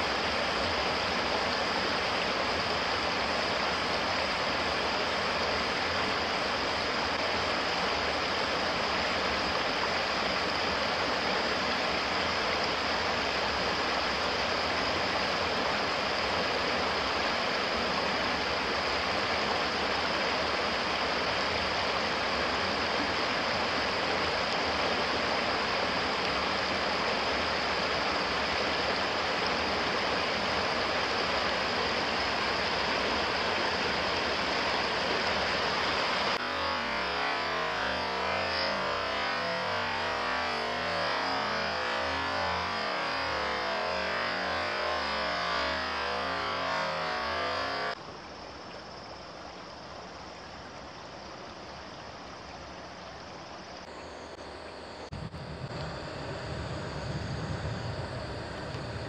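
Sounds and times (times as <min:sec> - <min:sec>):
stream rushing over rocks: 0:00.0 - 0:38.1.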